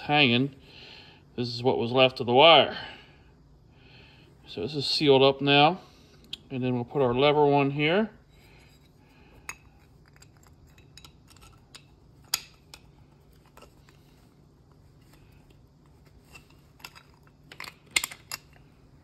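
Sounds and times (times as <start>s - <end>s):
faint low hum: 0.0s - 19.0s
small metal clicks and knocks: 9.4s - 14.0s, 16.2s - 18.7s.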